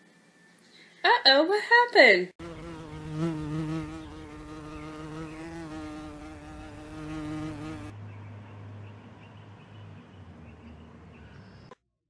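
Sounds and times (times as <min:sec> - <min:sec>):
insect buzzing in flight: 0:02.4 - 0:07.9.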